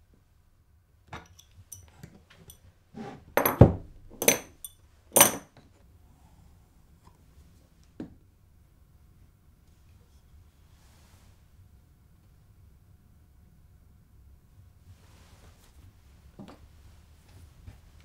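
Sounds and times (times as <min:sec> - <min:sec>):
metallic clinks and rattles: 0:01.2 - 0:02.6, 0:04.2 - 0:05.5.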